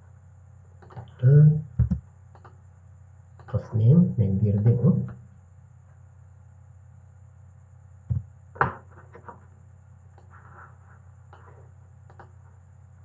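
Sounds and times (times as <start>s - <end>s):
low electrical hum: 0.0s - 13.0s
dull knocks: 1.8s - 2.0s, 8.1s - 8.8s
faint mouse clicks: 2.3s - 2.6s, 3.4s - 3.6s, 11.3s - 12.4s.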